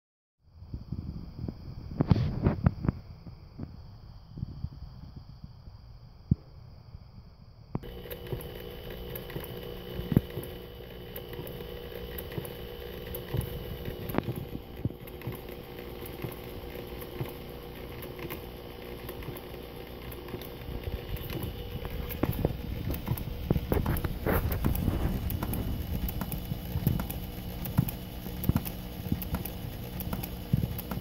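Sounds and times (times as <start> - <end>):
electric drill running: 7.8 - 31.0.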